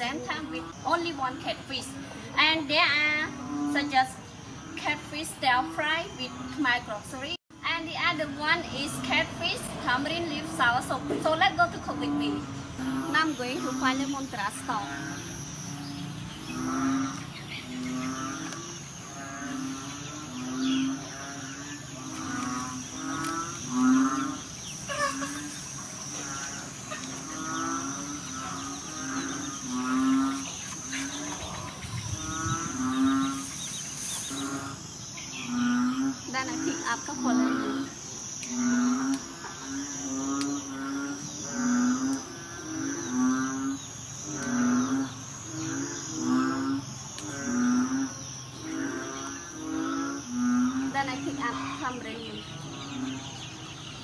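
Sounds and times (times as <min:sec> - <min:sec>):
high insect drone: 0:00.0 - 0:54.0
low moo-like animal calls: 0:08.8 - 0:53.6
wavering higher calls: 0:11.9 - 0:38.6.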